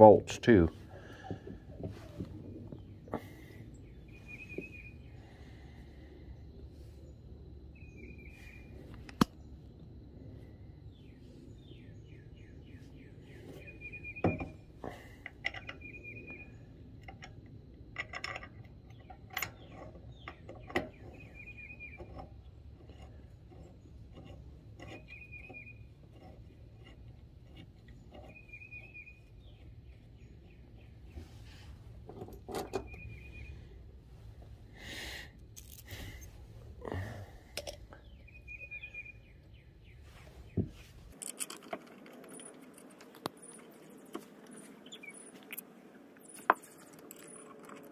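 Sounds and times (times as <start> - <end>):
bird chirping: 1.0 - 9.8, 10.5 - 14.7, 15.6 - 16.8, 18.8 - 31.8, 32.6 - 33.9, 37.8 - 41.3, 42.0 - 47.9
metallic clicks of metal parts: 14.3 - 16.0, 17.0 - 30.5, 35.4 - 36.4, 37.5 - 38.1, 41.1 - 47.9.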